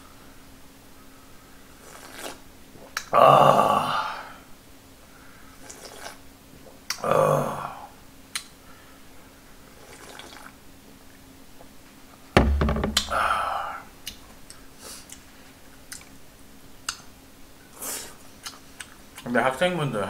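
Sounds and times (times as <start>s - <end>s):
bowl thudding on wooden table: 12.4s - 13.4s
person exhaling: 13.1s - 13.8s.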